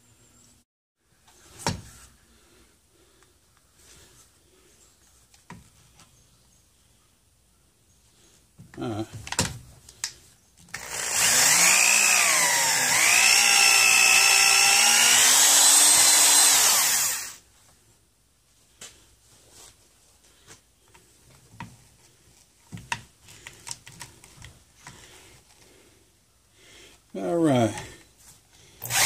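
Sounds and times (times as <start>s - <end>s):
electric drill boring into wood: 10.7s - 17.4s, 28.8s - 29.0s.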